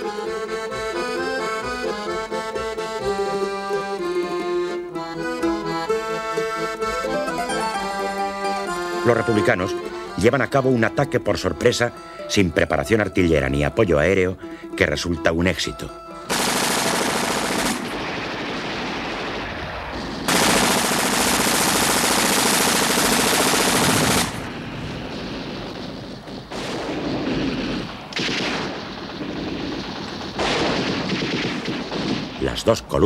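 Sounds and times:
machine-gun fire: 16.3s - 32.5s.

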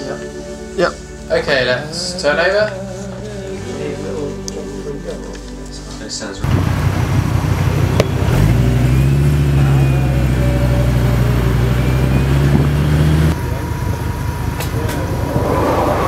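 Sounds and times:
car engine idling: 6.4s - 16.0s.

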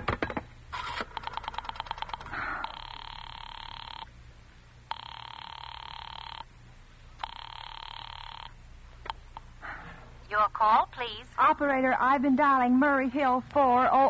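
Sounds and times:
telephone busy signal: 0.8s - 4.1s, 4.9s - 6.4s, 7.2s - 8.5s.

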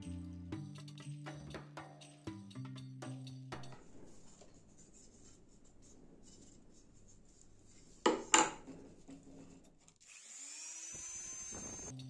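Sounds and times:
rotary tool motor whine: 10.0s - 11.9s.

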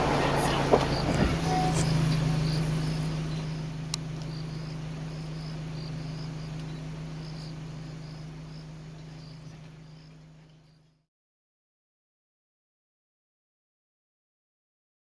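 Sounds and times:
crickets chirping: 0.0s - 11.0s
steady low hum: 0.0s - 11.0s.

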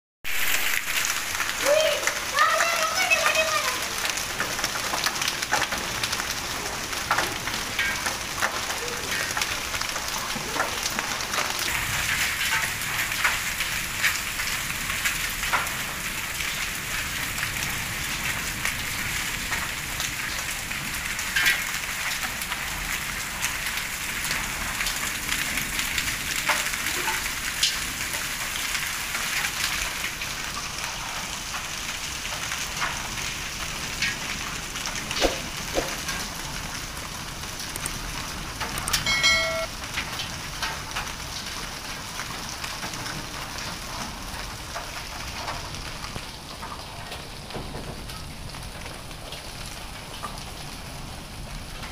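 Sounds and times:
hail and rain falling on concrete: 0.2s - 51.9s
hailstones ticking: 0.3s - 51.9s
brief high pitched sound: 39.0s - 39.7s.

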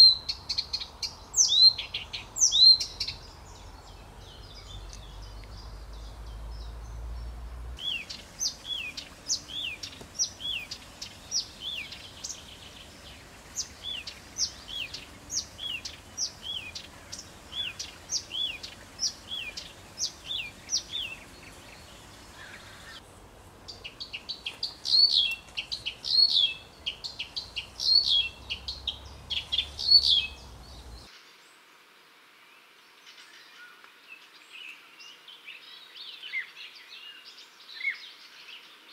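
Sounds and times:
warbler singing: 0.0s - 23.0s, 23.6s - 31.1s.

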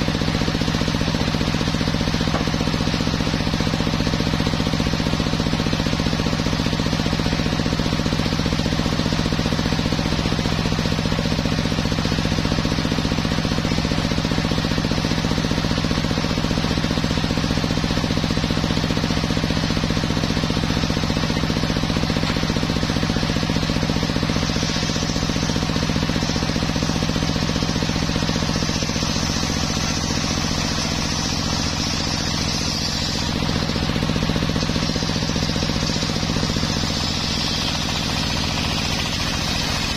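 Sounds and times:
circular saw blade spinning: 13.2s - 39.9s.

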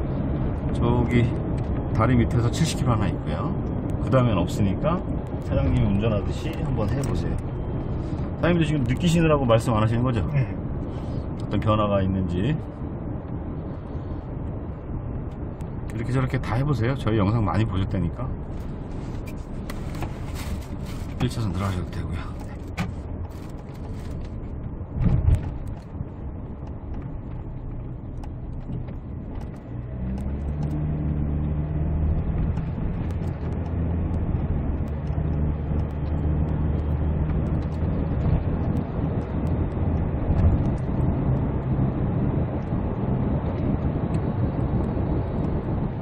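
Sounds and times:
diesel engine hum: 0.0s - 46.0s
road noise: 0.0s - 46.0s.

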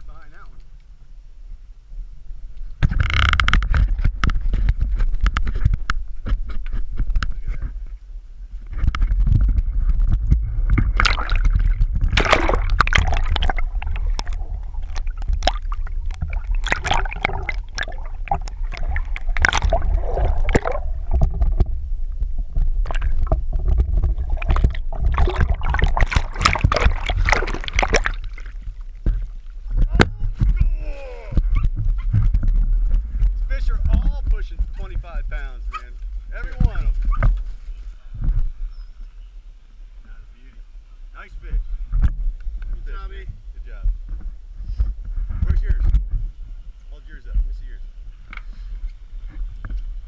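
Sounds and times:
low rumble: 7.5s - 36.9s
underwater water gurgling: 8.8s - 30.7s
water splashes: 8.8s - 31.4s.

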